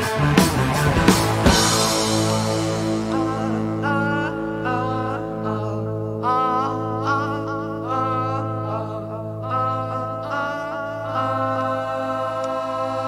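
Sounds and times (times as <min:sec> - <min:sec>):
sustained guitar chord: 0:00.0 - 0:06.9
man singing: 0:02.9 - 0:13.0.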